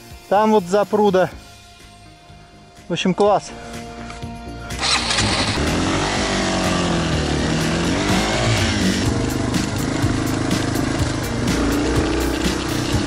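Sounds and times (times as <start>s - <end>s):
motorcycle engine revving: 4.8s - 13.0s.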